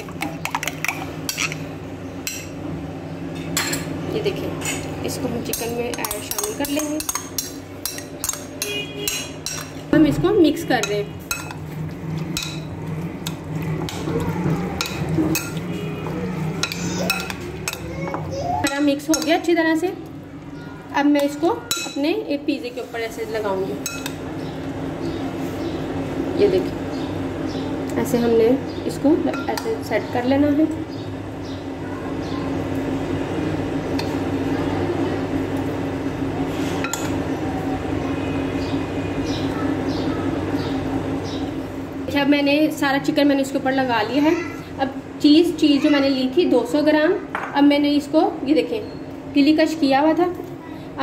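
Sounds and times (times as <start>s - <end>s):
low background hum: 0.0s - 51.0s
spoon clinking against glass bowl: 5.5s - 9.8s, 21.7s - 22.0s, 23.8s - 24.2s.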